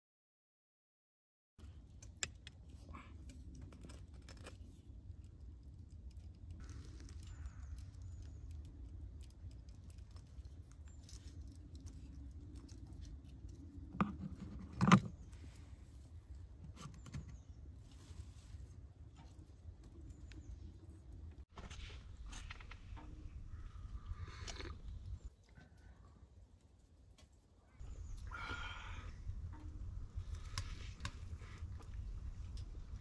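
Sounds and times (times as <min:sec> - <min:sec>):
steady low rumble: 0:27.7 - 0:33.0.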